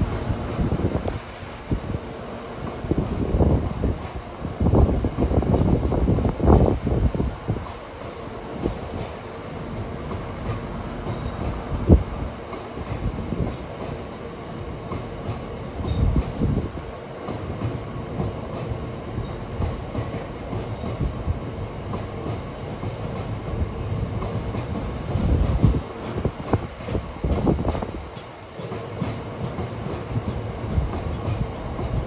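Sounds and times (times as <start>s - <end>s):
train wheels clattering: 0.0s - 32.0s
faint steady squeal: 7.6s - 11.9s.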